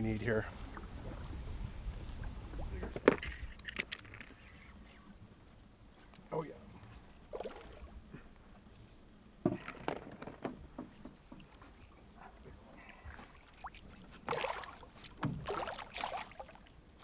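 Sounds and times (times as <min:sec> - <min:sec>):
fish thrashing and splashing: 0:13.4 - 0:16.7.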